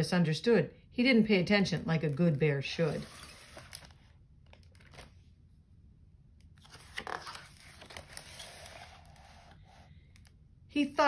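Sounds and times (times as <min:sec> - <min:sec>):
book pages turning: 0:02.1 - 0:05.2, 0:06.4 - 0:10.4.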